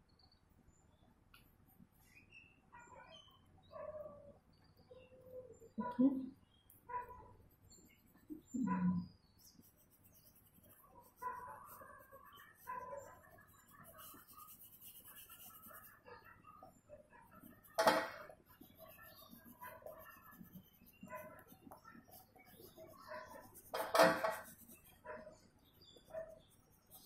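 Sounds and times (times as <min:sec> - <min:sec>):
faint background sounds: 0:00.0 - 0:27.0
oil pastel scratching on paper: 0:06.9 - 0:27.0.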